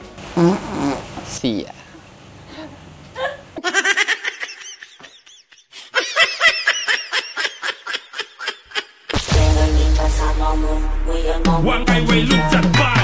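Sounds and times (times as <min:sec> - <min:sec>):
high-pitched laugh: 0:03.2 - 0:09.1.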